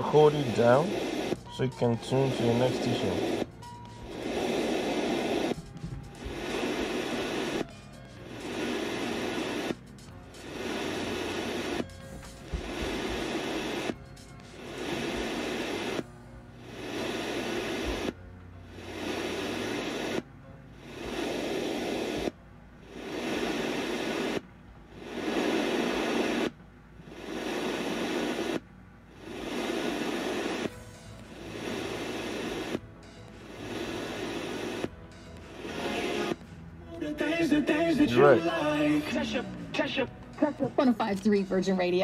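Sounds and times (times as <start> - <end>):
radio station snippets while scanning: 0.0 - 3.5, 37.1 - 42.0.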